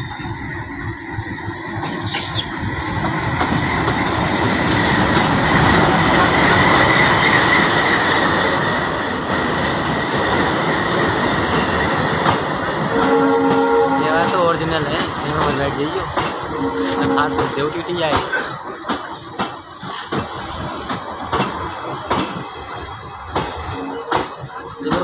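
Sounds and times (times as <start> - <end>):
train rumbling past: 0.0 - 25.0
high wheel squeal: 1.9 - 2.7.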